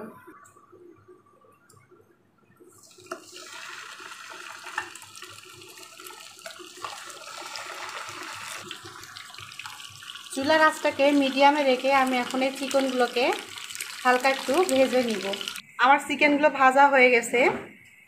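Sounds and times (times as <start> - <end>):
chicken sizzling in oil: 3.0 - 15.6.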